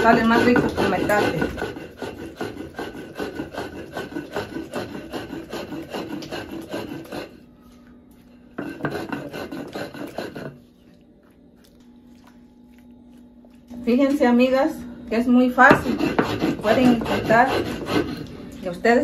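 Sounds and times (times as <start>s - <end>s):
stone roller grinding on stone: 0.0s - 7.4s, 8.6s - 10.8s, 15.5s - 18.8s.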